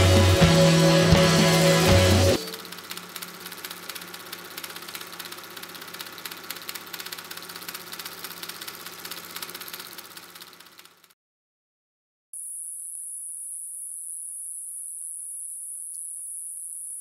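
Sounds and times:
mechanical hum with fine rattle: 0:02.3 - 0:11.1.

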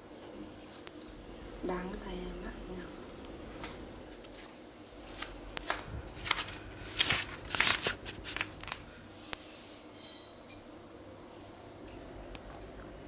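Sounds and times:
faint high squeak: 0:10.0 - 0:10.5.

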